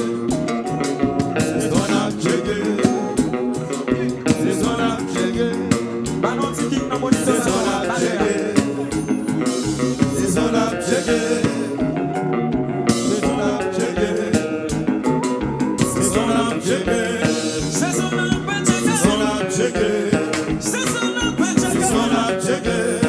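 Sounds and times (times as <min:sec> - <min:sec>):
live band playing: 0:00.0 - 0:23.0
singers singing: 0:00.0 - 0:23.0.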